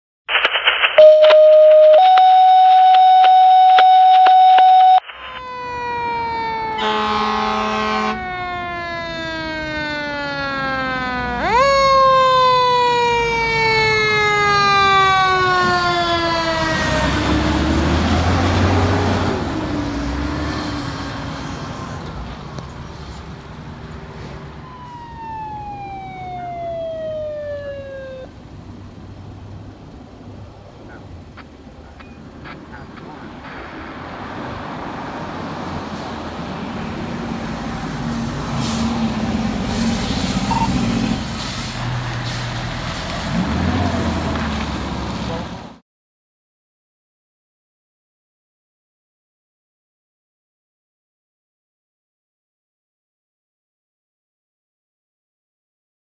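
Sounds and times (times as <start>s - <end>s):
loud steady tone: 0.3s - 5.8s, 6.6s - 8.2s
fire truck siren: 0.6s - 22.4s, 24.2s - 29.0s, 32.9s - 45.8s
truck engine passing: 5.4s - 45.8s
horn blast: 6.7s - 8.3s.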